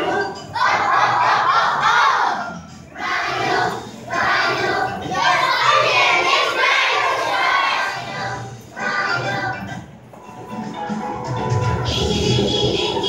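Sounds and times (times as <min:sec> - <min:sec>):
young children's voices: 0:00.0 - 0:09.7.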